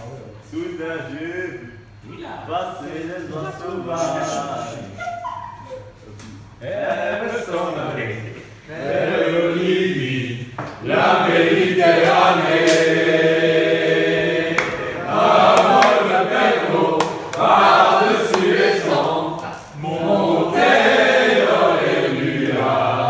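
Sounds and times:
group singing a chant: 0:06.6 - 0:23.0.

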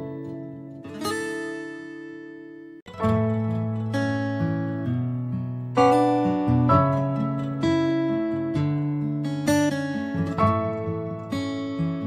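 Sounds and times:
plucked string chord: 0:10.0 - 0:12.0.

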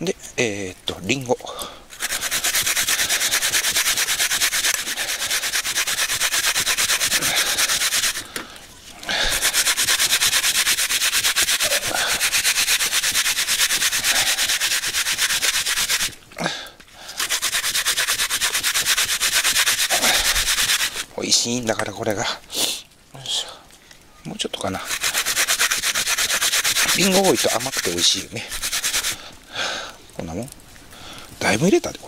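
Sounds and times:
apple grating on a grater: 0:01.9 - 0:08.3, 0:09.0 - 0:16.2, 0:17.2 - 0:21.1, 0:24.7 - 0:29.2.

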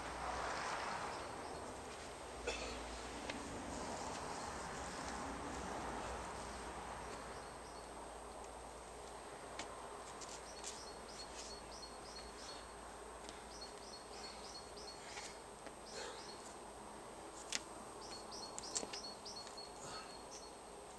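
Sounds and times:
steady outdoor hiss: 0:00.0 - 0:20.9
small birds chirping: 0:06.5 - 0:08.0, 0:10.2 - 0:16.6, 0:18.0 - 0:20.6.

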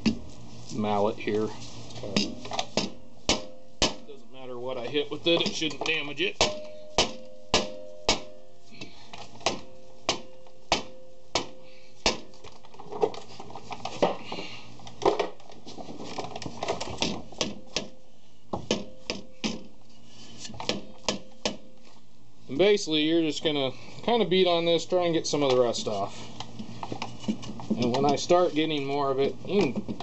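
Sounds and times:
mallet striking metal drum: 0:02.1 - 0:04.1, 0:05.3 - 0:08.8, 0:09.4 - 0:12.3
metal drum ringing: 0:02.1 - 0:12.3.

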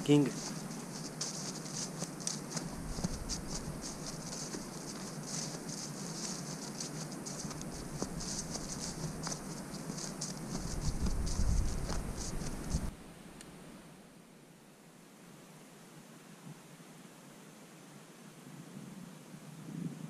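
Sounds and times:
grasshoppers chirping: 0:00.0 - 0:12.9.

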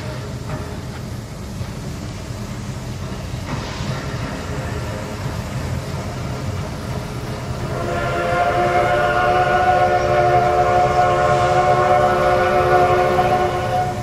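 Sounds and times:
steam locomotive whistle: 0:07.5 - 0:14.0.

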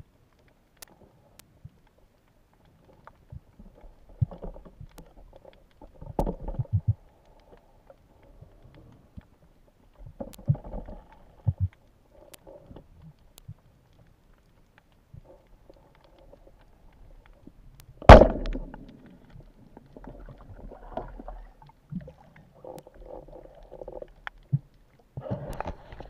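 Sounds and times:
sharp underwater clicks: 0:00.3 - 0:26.0.

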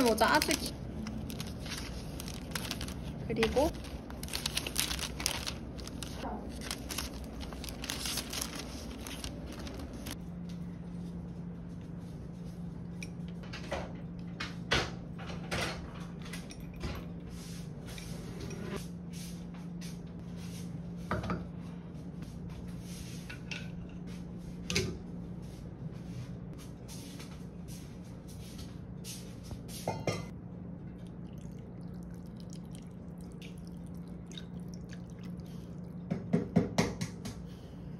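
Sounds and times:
plastic bags crinkling: 0:00.0 - 0:10.2
steady low hum: 0:00.0 - 0:15.3, 0:15.9 - 0:37.9.

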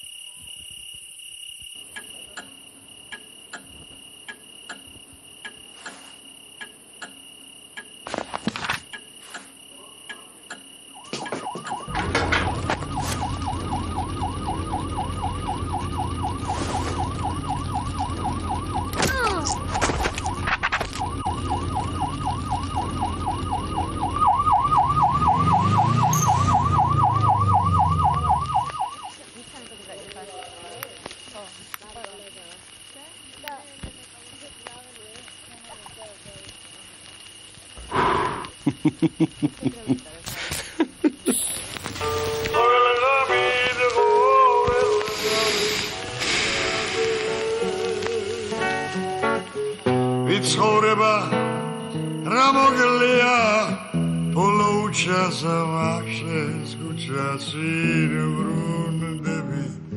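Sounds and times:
faint regular ticks: 0:01.6 - 0:10.8, 0:28.1 - 0:41.2, 0:44.7 - 0:49.9
siren yelping: 0:10.9 - 0:29.2.

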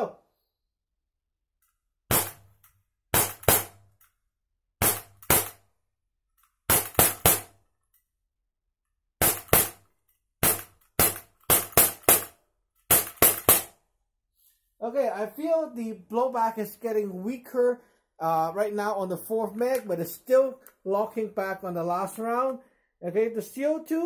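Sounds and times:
bb pistol shots: 0:02.1 - 0:03.9, 0:04.8 - 0:05.7, 0:06.7 - 0:07.6, 0:09.2 - 0:13.8.

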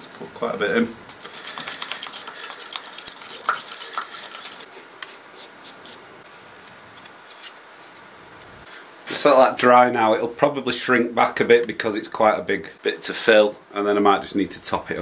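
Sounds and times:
stick scraping plastic pot: 0:01.2 - 0:04.7.

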